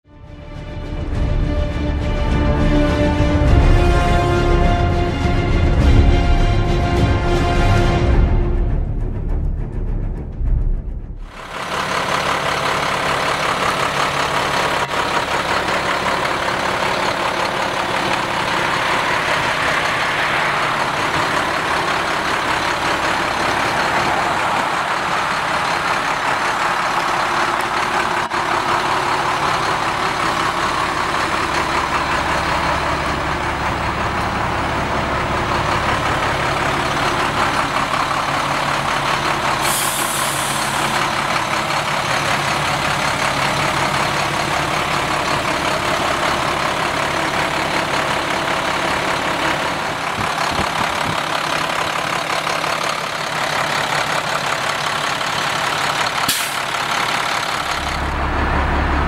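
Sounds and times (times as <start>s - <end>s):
truck diesel engine running: 1.0s - 8.5s, 11.2s - 59.0s
air hiss: 39.6s - 41.0s.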